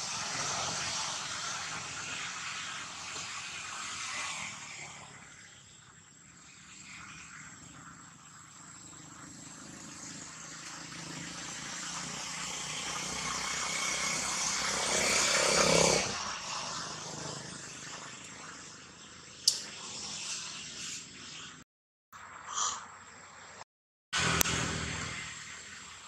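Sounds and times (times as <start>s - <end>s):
motor engine droning: 6.9s - 18.3s, 24.2s - 26.0s.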